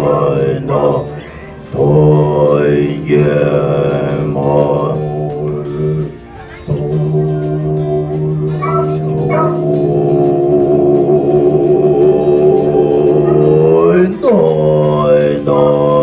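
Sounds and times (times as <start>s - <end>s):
monks chanting in unison: 0.0s - 16.0s.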